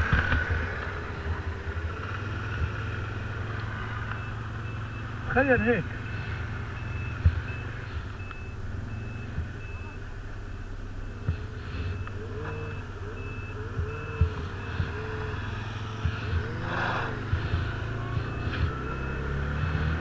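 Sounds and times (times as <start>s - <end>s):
atv engine running: 0.0s - 20.0s.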